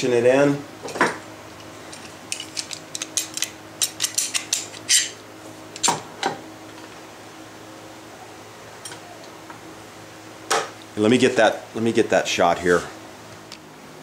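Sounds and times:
faint steady hum: 0.0 - 14.0
bar clamp metallic clicks and rattles: 1.9 - 5.1.

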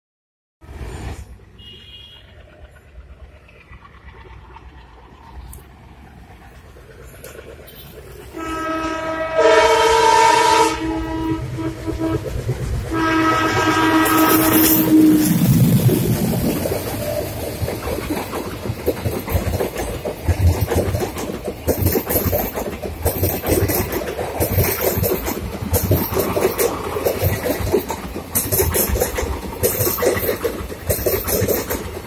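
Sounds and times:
diesel locomotive engine: 0.6 - 32.0
train wheels clattering over rail joints: 12.2 - 32.0.

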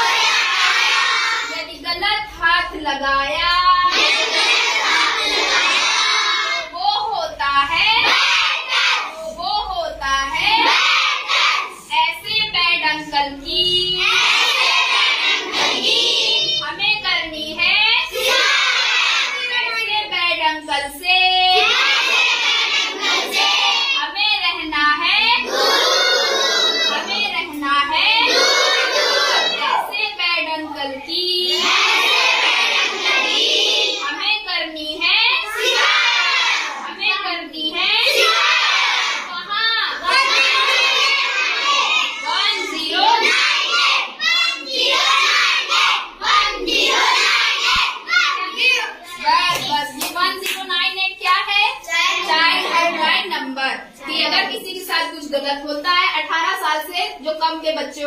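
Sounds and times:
children singing in unison: 0.0 - 1.5, 3.9 - 6.6, 14.0 - 16.6, 21.6 - 23.9, 25.4 - 27.2, 28.2 - 29.7, 31.5 - 34.1, 35.5 - 37.0, 38.1 - 39.4, 40.0 - 48.4.

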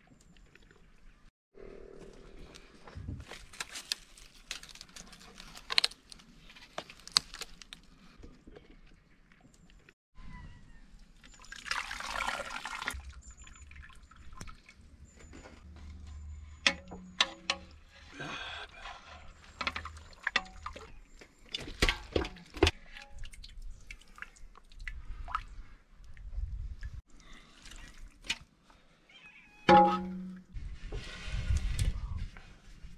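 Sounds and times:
liquid pouring or sloshing: 11.3 - 14.8
sharp clicks and knocks: 16.6 - 17.8.

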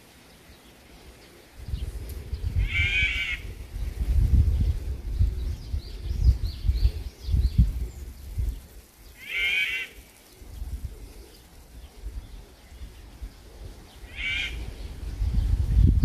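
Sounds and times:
bird calling: 0.0 - 3.6, 8.8 - 15.0.

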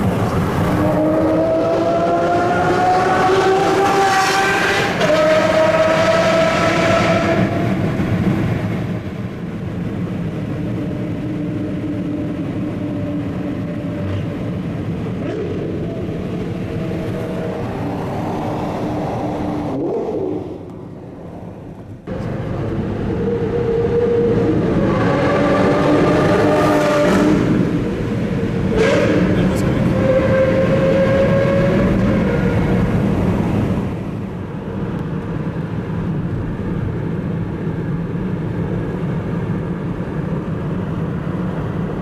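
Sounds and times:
sports car engine accelerating: 0.1 - 8.4, 22.1 - 33.8.

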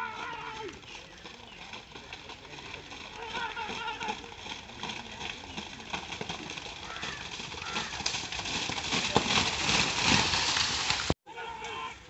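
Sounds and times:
people shouting: 0.0 - 0.8, 3.2 - 4.3, 11.2 - 12.0
buffaloes splashing through mud: 0.0 - 11.2.

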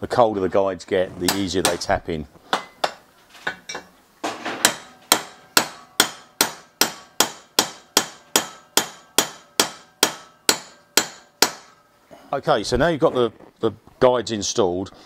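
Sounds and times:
hammer tapping metal: 2.5 - 11.8.

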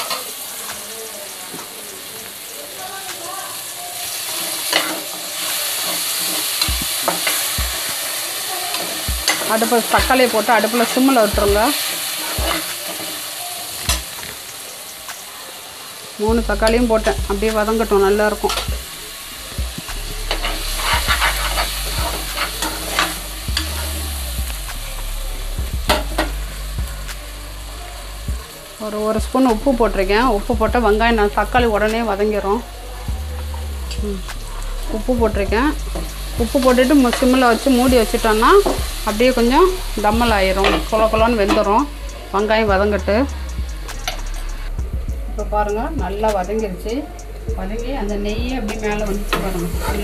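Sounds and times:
vegetables sizzling in pan: 0.0 - 44.8, 45.4 - 50.0
dull low thumps: 16.3 - 28.6, 29.2 - 46.5, 47.1 - 50.0.

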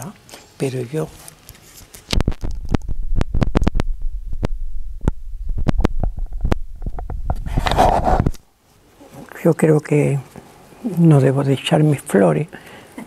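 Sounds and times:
cloth rustling against microphone: 0.4 - 11.3
microphone handling thumps and clicks: 1.9 - 8.4.

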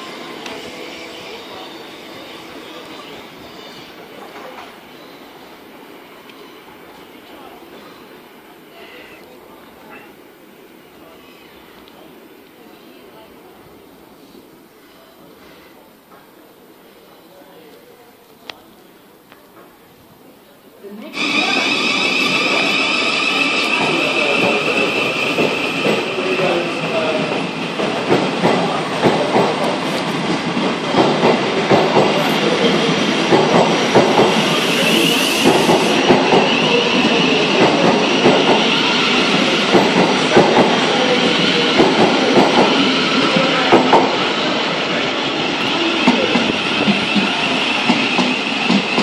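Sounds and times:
train high whine: 0.0 - 15.6, 21.0 - 49.0
train wheels clicking over rail joints: 27.6 - 44.2.

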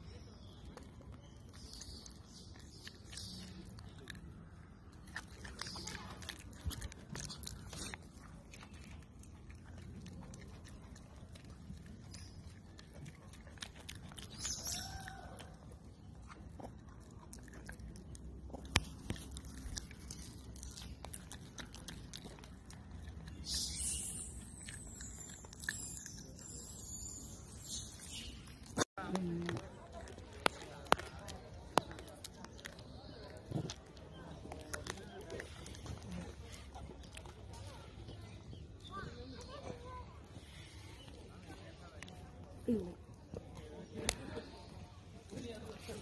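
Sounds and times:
infant monkey sucking and clicks: 0.4 - 46.0
high chirps: 23.3 - 28.8.

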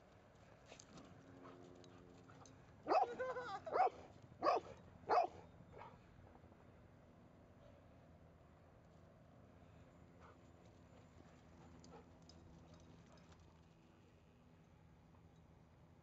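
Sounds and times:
dog barking: 2.9 - 5.9.

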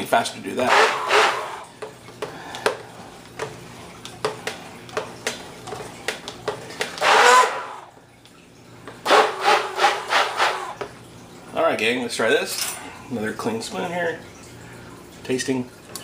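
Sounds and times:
immersion blender motor hum: 0.6 - 1.7, 7.0 - 7.9, 9.1 - 10.9.

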